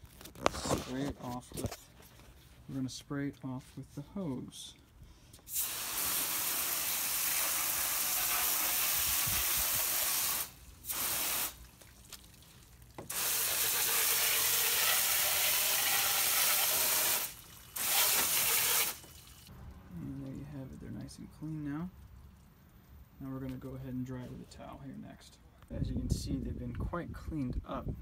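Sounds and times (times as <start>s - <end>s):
hose nozzle spraying water: 5.5s - 19.5s.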